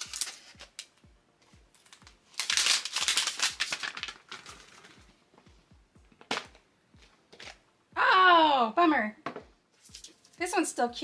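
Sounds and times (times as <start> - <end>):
plastic wrapper crinkling: 0.0 - 0.9, 1.8 - 5.1
background music with low beat: 0.0 - 11.0.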